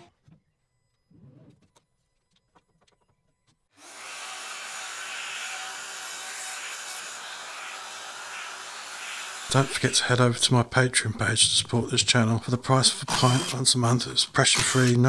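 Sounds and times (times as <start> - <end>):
router cutting plywood: 3.8 - 10.0.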